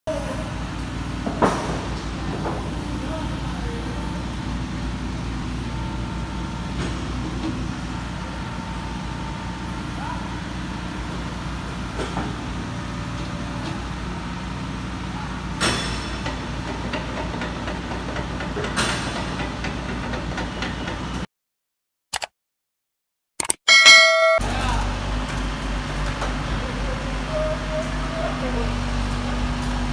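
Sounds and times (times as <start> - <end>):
diesel engine idling: 0.1 - 15.6
sharp metallic knocks: 23.7 - 24.5.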